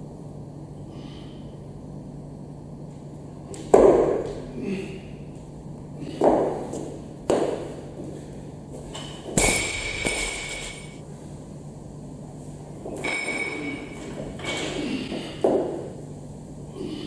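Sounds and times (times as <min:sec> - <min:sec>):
bar and plates ringing: 0:13.0 - 0:14.6.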